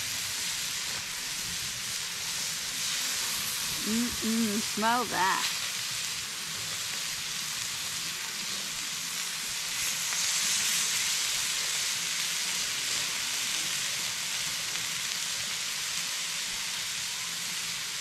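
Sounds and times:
chicken wings sizzling on grill: 0:00.0 - 0:18.0.

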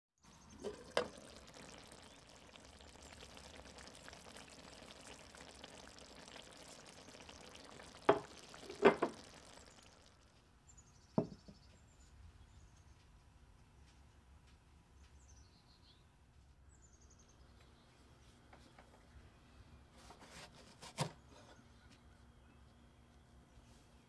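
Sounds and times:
stew bubbling in a pan: 0:00.3 - 0:10.4.

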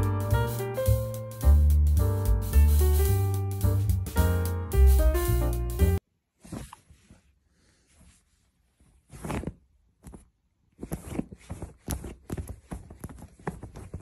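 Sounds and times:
rustling on duvet cover: 0:06.3 - 0:14.0.

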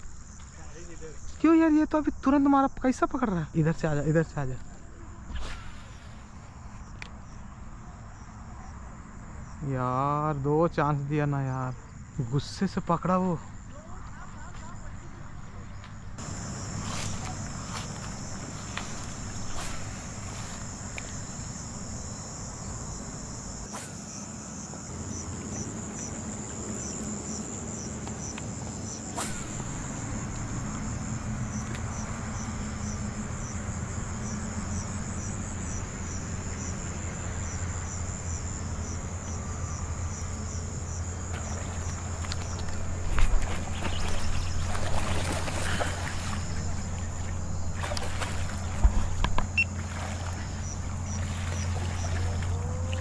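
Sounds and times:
insect chirp repeating: 0:00.0 - 0:13.7, 0:16.2 - 0:53.0
insects trilling: 0:00.0 - 0:53.0
low steady hum: 0:15.0 - 0:53.0
short thump: 0:29.2 - 0:29.6.

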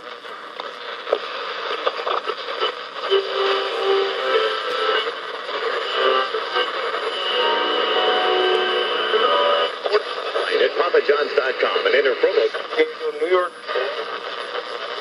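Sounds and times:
radio static crackling: 0:00.0 - 0:15.0
snatches of radio station audio: 0:00.0 - 0:15.0
radio whistling tones: 0:02.3 - 0:10.7.

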